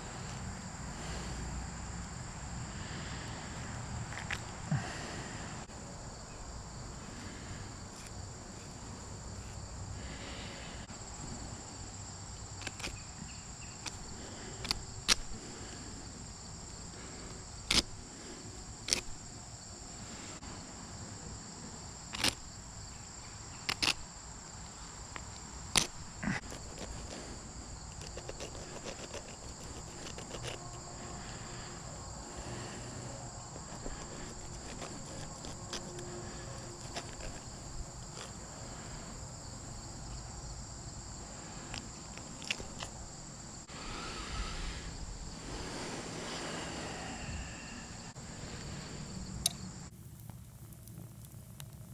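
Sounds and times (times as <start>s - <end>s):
high-pitched insect chorus: 0.0s - 50.1s
sharp clicks and snaps: 22.1s - 22.4s, 41.7s - 42.9s.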